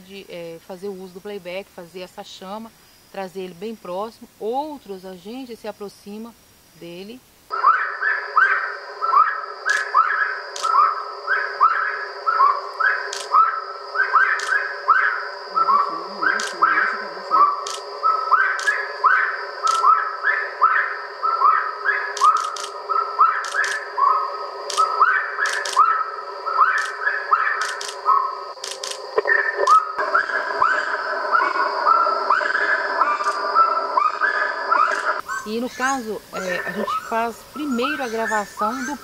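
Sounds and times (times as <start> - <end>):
bird whistled call: 7.6 - 28.3, 29.3 - 39.0
thin sharp clicks: 10.6 - 10.8, 13.1 - 13.3, 17.6 - 17.9, 19.7 - 19.9, 22.2 - 22.8, 23.4 - 23.8, 24.7 - 25.8, 26.8 - 27.0, 27.6 - 28.0, 28.6 - 29.8.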